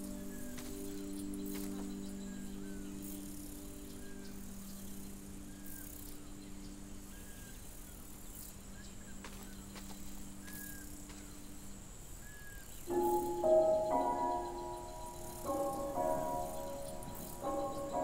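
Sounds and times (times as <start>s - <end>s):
low drone of held tones: 0.0s - 7.8s, 12.9s - 18.0s.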